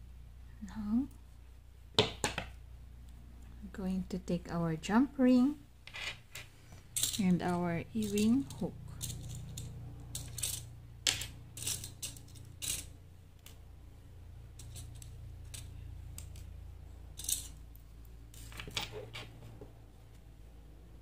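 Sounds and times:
small metal pieces clinking: 5.9 - 13.6, 14.5 - 16.5, 17.1 - 17.6.

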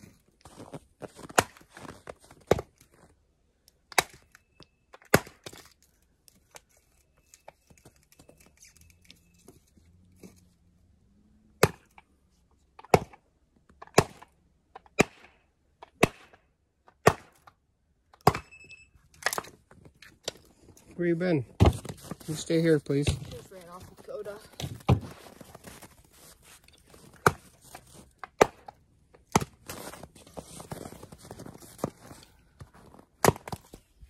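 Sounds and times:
axe chopping wood: 1.3 - 1.7, 5.0 - 5.6, 11.6 - 12.0, 12.8 - 13.2, 13.8 - 14.3, 14.9 - 17.4, 27.1 - 27.5, 28.2 - 29.8, 33.2 - 33.7.

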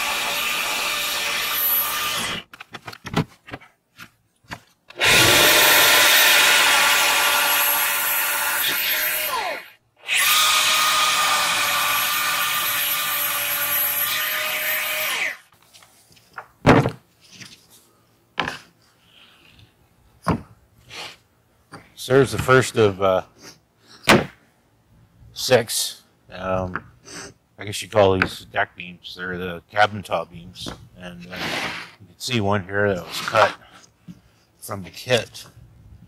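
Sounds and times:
jigsaw cutting wood: 0.0 - 2.5, 4.9 - 15.4
knocks of wood handled: 16.4 - 17.0.

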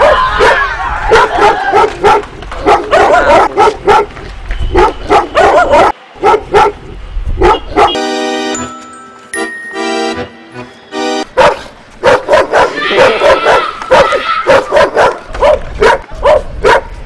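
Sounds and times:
dog barking: 0.0 - 8.0, 11.4 - 17.0
music with held tones: 8.0 - 11.3.

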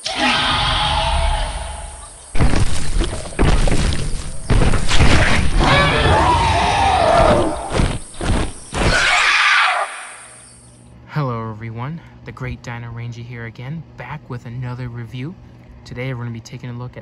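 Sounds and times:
booming hits and crashes: 0.0 - 9.0
pitched cry falling: 5.6 - 7.8, 8.8 - 10.4.

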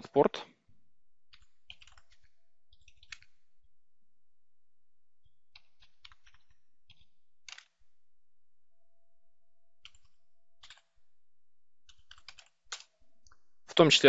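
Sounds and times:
computer keyboard typing: 1.2 - 3.6, 5.2 - 7.8, 9.6 - 10.9, 11.8 - 13.5.

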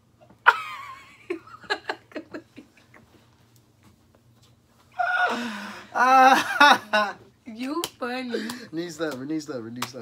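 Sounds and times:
person laughing: 6.0 - 7.2.

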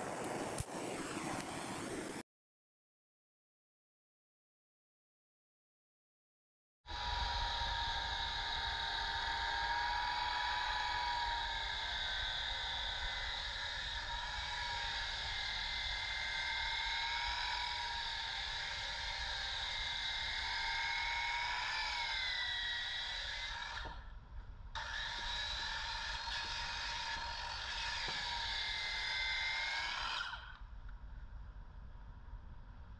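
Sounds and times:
electric sander whining: 6.9 - 24.1, 24.8 - 30.6.

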